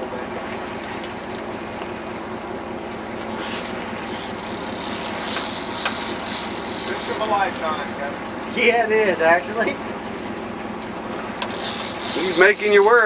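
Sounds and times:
boat engine running: 0:00.0 - 0:13.0
sea and wind noise: 0:00.0 - 0:13.0.

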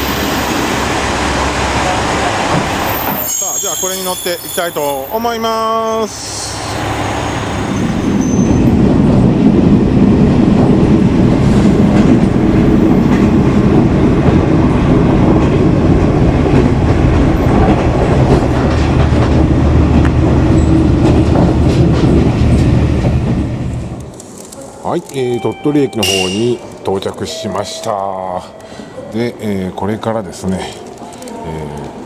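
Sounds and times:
diesel railcar engine rumble: 0:00.0 - 0:32.0.

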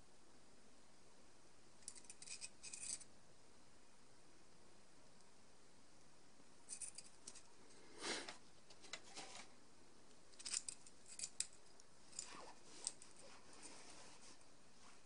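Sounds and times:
cable rustling in hands: 0:08.2 - 0:09.6, 0:10.4 - 0:15.0.

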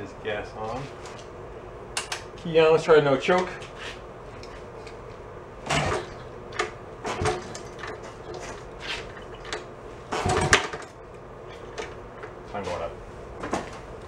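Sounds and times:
motorcycle engine kick-started not catching: 0:10.2 - 0:10.9.

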